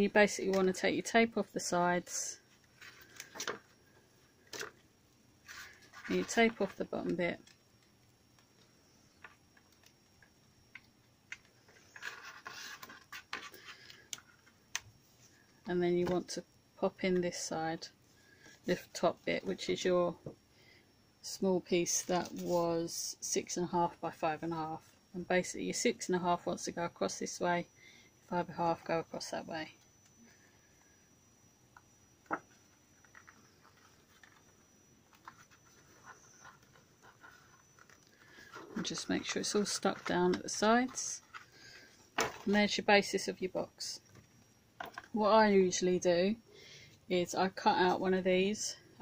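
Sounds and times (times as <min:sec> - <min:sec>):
paper rustling on cutting mat: 0:22.0 - 0:22.6.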